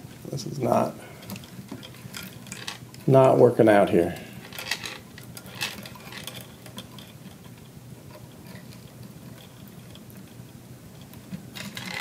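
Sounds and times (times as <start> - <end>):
chain links clicking: 4.4 - 7.2, 11.6 - 12.0.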